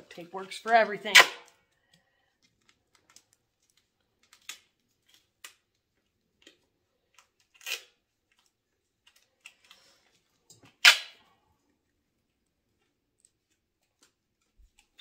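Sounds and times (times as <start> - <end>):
duct tape clicks and crinkles: 1.2 - 9.9.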